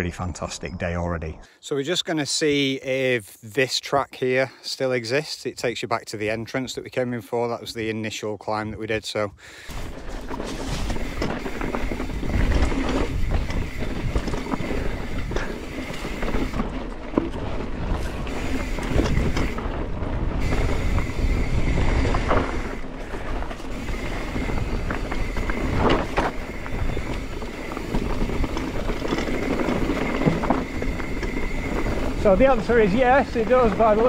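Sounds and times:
bike rattling over rocks: 9.6s - 34.0s
bike tyres rolling over stones: 9.6s - 34.0s
wind on microphone: 9.8s - 32.8s.

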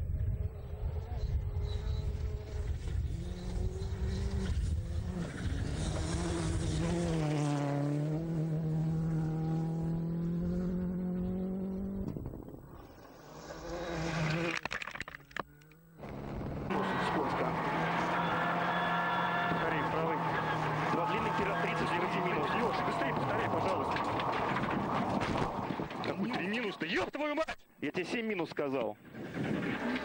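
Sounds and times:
rally car engine running hard: 0.2s - 12.1s, 16.0s - 25.1s.

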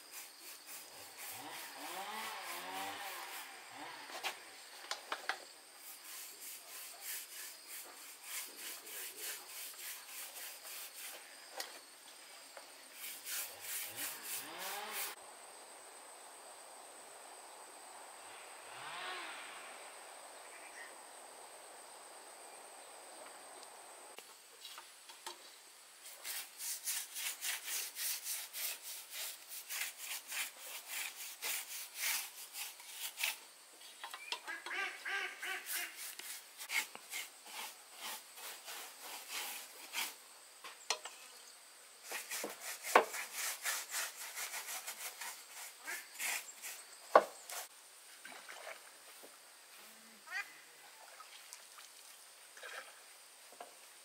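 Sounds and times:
hand tool stroking wood: 0.0s - 4.4s, 5.8s - 11.7s, 12.9s - 15.2s, 26.0s - 40.2s, 42.0s - 47.7s.

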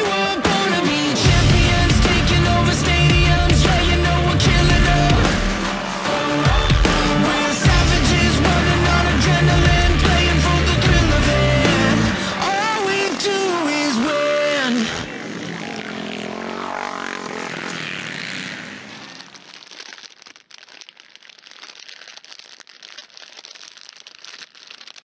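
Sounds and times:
song with singing: 0.0s - 15.1s
dirt bike engines racing: 0.0s - 19.6s
crackling hiss: 17.0s - 25.0s.

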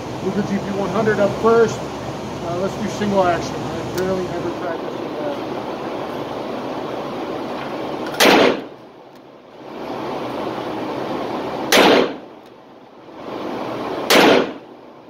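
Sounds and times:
steady background hiss: 0.0s - 15.0s
revolver shots echoing indoors: 8.2s - 8.8s, 11.7s - 12.2s, 14.0s - 14.7s.

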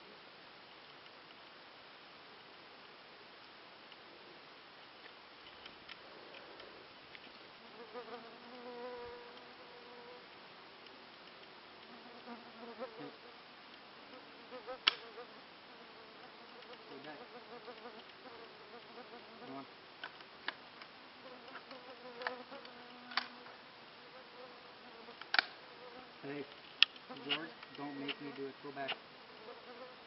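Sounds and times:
flying insects buzzing: 4.9s - 10.5s, 11.7s - 30.0s
sharp clicks: 14.8s - 15.0s, 25.2s - 25.6s.

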